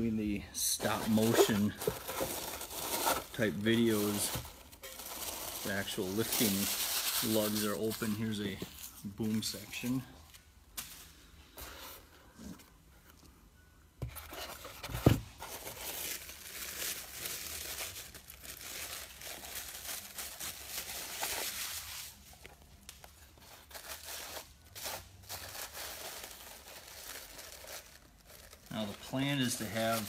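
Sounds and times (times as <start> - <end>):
plastic bag crinkling: 1.1 - 8.7, 15.4 - 22.2, 24.6 - 30.0.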